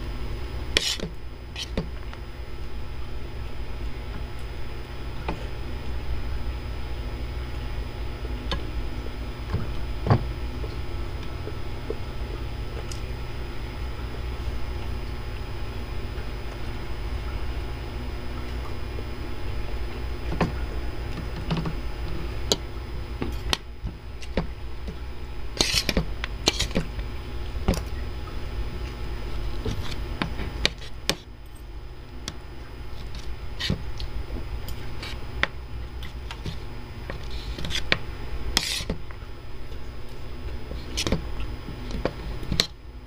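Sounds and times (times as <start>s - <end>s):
low hum: 0.0s - 43.0s
cutlery scraping ceramic plate: 0.8s - 1.8s, 25.6s - 26.8s, 38.6s - 39.0s.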